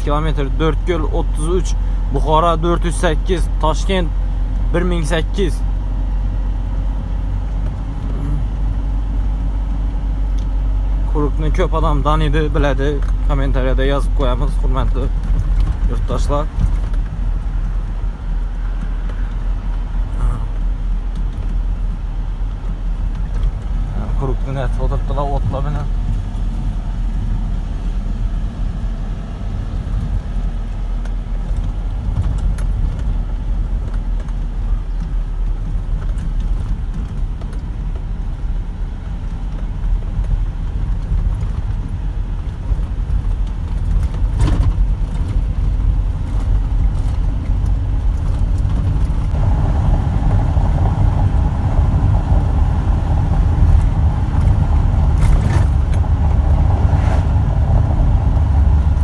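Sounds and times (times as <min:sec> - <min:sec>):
truck engine rumble: 0:00.0 - 0:59.0
higher drone: 0:49.3 - 0:59.0.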